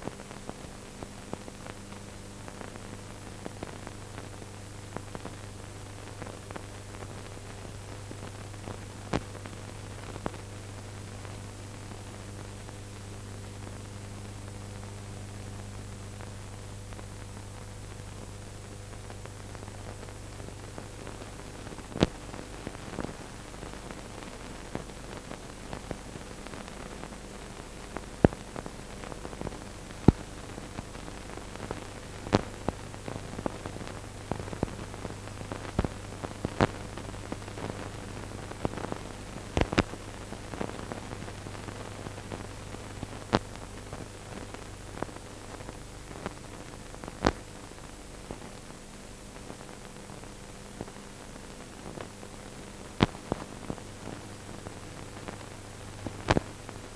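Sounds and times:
film playback hiss: 0.0s - 56.9s.

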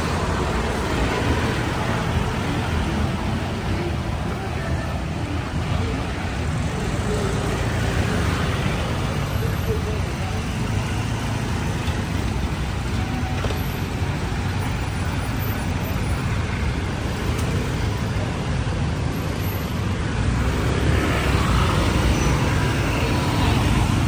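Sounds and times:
cars and motorbikes passing: 0.0s - 24.0s.

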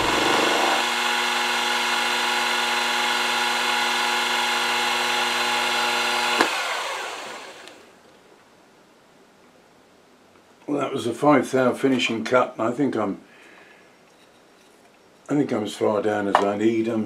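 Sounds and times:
mill spindle whining: 0.0s - 7.8s.

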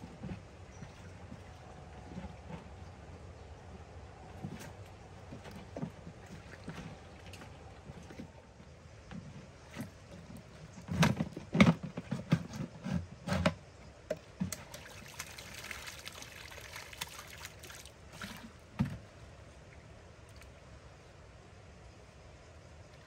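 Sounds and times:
water trickling: 14.4s - 18.7s
water splashing: 14.4s - 18.8s.

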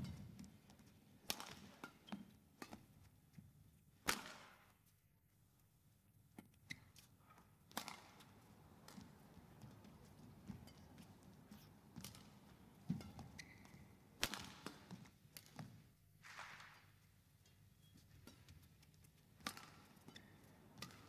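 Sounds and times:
badminton racket hitting shuttlecock: 1.2s - 3.0s, 4.0s - 4.6s, 7.7s - 16.8s, 18.2s - 21.0s.

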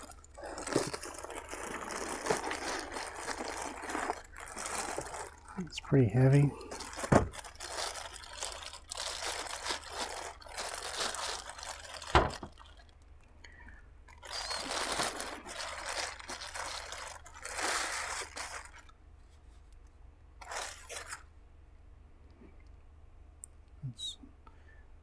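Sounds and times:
plastic bag crinkling: 0.0s - 13.0s, 14.0s - 19.0s, 20.4s - 21.3s.

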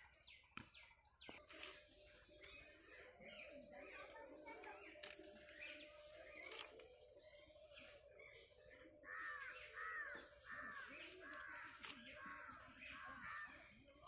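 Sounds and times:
crow cawing: 9.1s - 11.7s.

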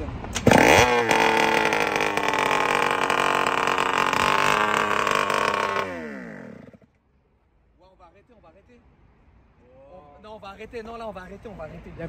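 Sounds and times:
engine cutting out and winding down: 0.4s - 6.9s
scooter engine idling: 0.5s - 6.9s.

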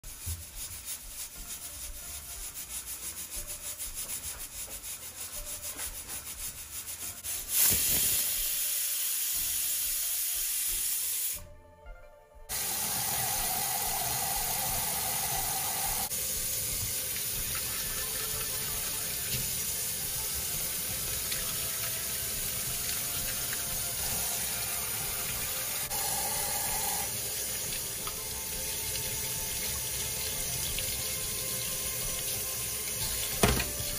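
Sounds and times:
pressure cooker valve hissing steam: 7.1s - 11.4s, 12.5s - 33.9s
tap water running into sink: 12.5s - 33.9s.

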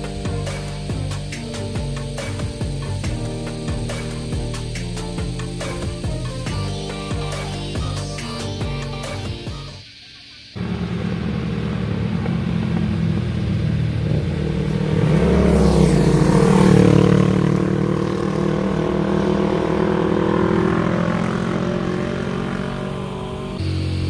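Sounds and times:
motorcycles riding past: 10.6s - 24.0s.

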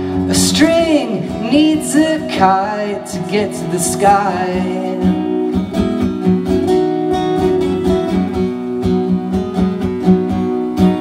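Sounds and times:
person singing: 0.0s - 5.5s
acoustic guitar strumming: 0.0s - 11.0s.

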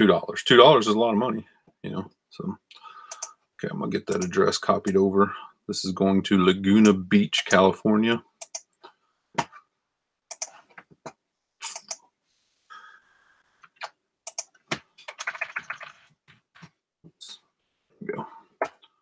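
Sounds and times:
computer keyboard keystrokes: 3.1s - 3.3s, 13.8s - 15.9s
mouse clicks: 3.1s - 3.3s, 8.4s - 8.7s, 13.7s - 14.5s.

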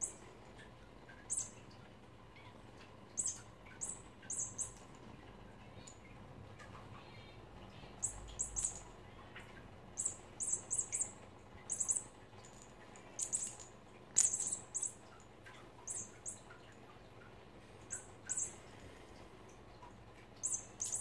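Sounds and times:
high-pitched bird-like chirps: 1.2s - 1.6s, 3.2s - 4.8s, 7.9s - 8.9s, 10.0s - 12.1s, 13.2s - 15.1s, 15.9s - 16.5s, 17.9s - 18.6s, 20.4s - 21.0s.

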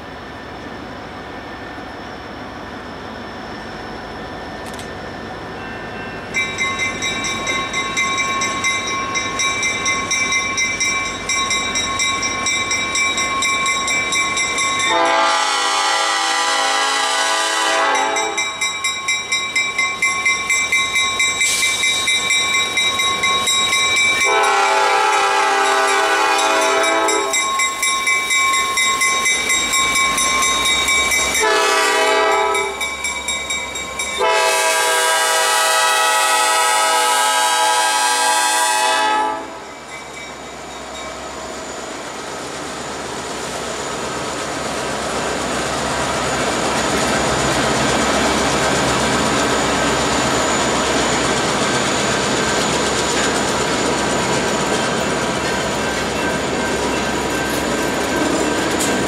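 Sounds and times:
crossing bell ringing: 4.7s - 35.5s, 39.2s - 42.3s, 46.7s - 59.0s
train horn blasts: 14.9s - 18.5s, 24.2s - 27.4s, 31.4s - 32.8s, 34.2s - 39.6s.

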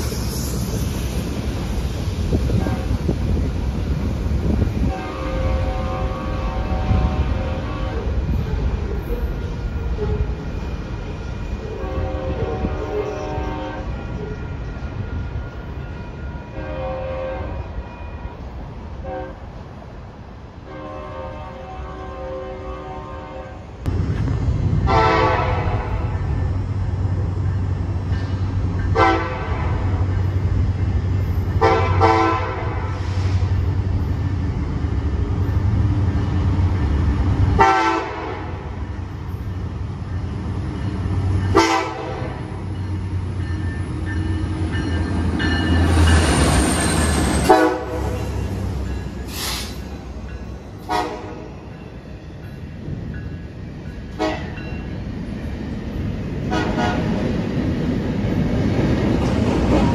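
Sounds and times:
train rolling by: 0.0s - 59.9s
locomotive air horn blasts: 4.8s - 8.2s, 11.8s - 14.2s, 16.5s - 17.7s, 20.7s - 23.7s, 24.9s - 26.2s, 29.0s - 30.0s, 31.6s - 33.4s, 37.6s - 38.6s, 41.5s - 42.5s, 47.4s - 48.2s, 50.8s - 51.5s, 54.2s - 54.6s, 56.5s - 57.0s.

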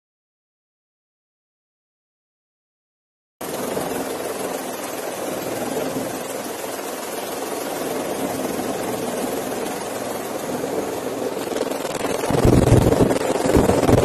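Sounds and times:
aircraft engine and rotor noise: 3.4s - 14.0s
heavy irregular low rumbling: 11.8s - 14.0s.

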